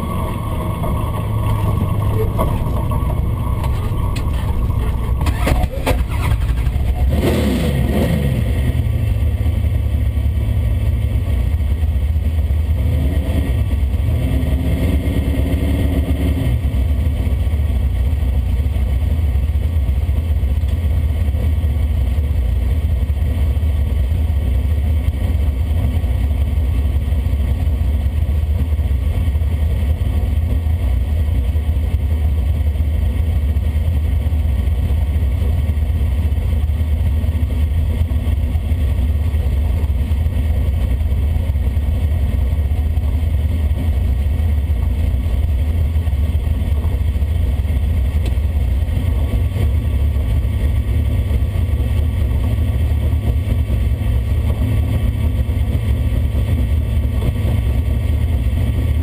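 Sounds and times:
car engine rumbling: 0.0s - 59.0s.

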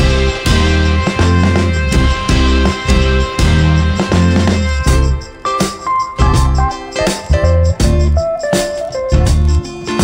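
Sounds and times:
music with strong bass beat: 0.0s - 10.0s.

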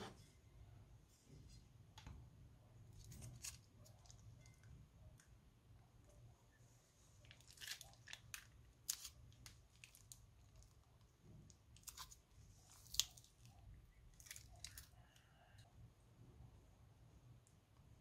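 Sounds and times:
sticky slime clicks and crackles: 12.8s - 13.5s.

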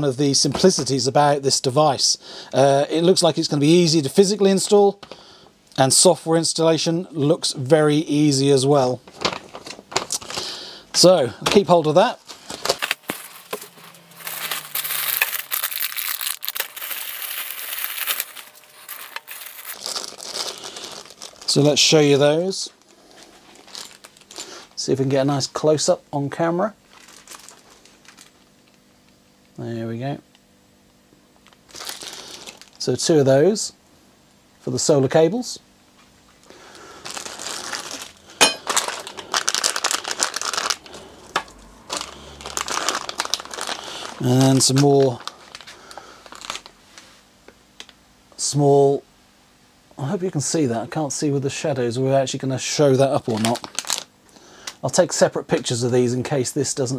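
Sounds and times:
plastic packaging crinkling: 8.8s - 25.1s, 26.8s - 28.8s, 31.4s - 32.8s, 36.6s - 47.1s, 52.9s - 55.7s.

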